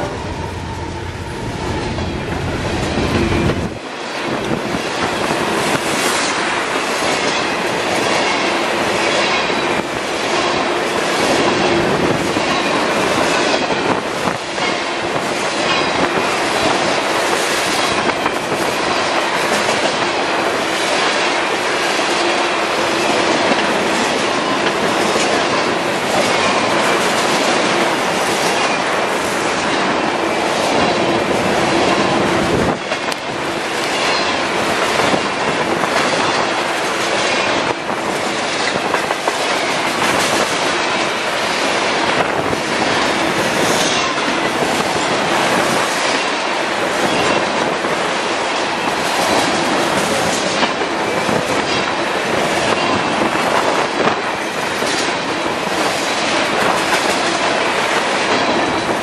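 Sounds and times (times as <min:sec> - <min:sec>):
train wheels rumbling on rails: 0:00.0 - 0:59.0
rhythmic clickety-clack: 0:01.9 - 0:59.0.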